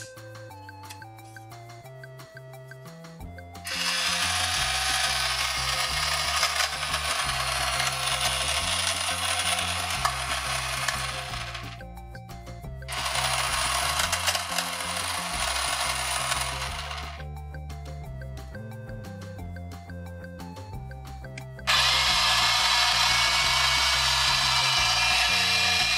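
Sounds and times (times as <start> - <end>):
toy toilet flush: 3.7 - 11.8, 12.9 - 17.2, 21.7 - 25.9.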